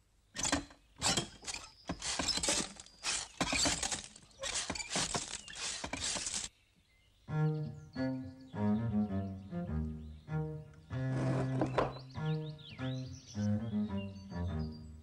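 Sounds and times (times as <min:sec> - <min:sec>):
music: 0:07.3 - 0:15.0.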